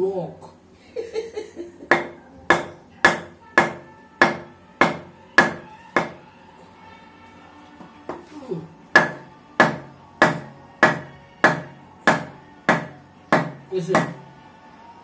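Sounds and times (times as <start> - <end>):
block hammering on knife: 1.9 - 6.2, 8.9 - 14.2.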